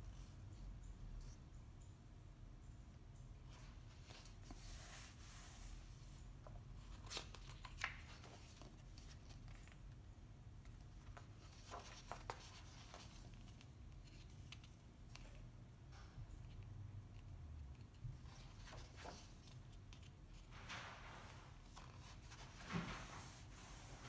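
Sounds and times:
book pages rustling: 0:03.5 - 0:10.0, 0:10.6 - 0:15.4, 0:17.8 - 0:24.0.

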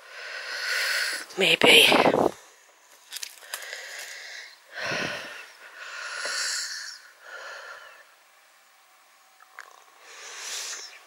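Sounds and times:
person breathing heavily: 0:00.0 - 0:01.3, 0:03.3 - 0:08.2, 0:10.0 - 0:11.0.

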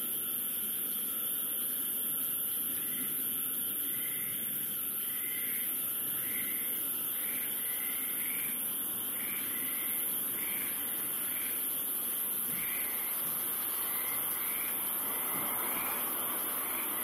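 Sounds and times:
high-pitched hiss: 0:00.0 - 0:17.0.

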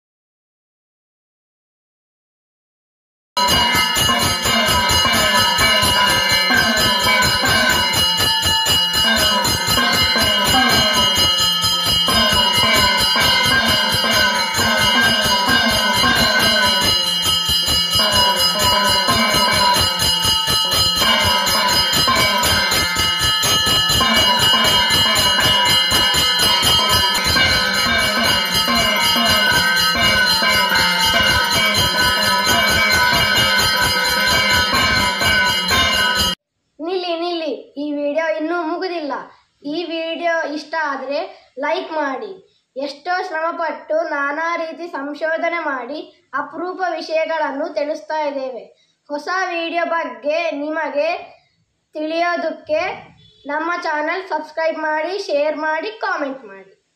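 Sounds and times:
bell ringing: 0:03.4 - 0:36.4.

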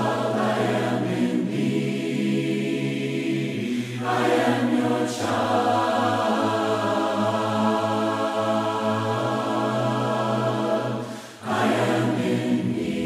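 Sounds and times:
choir singing a hymn: 0:00.0 - 0:13.0.

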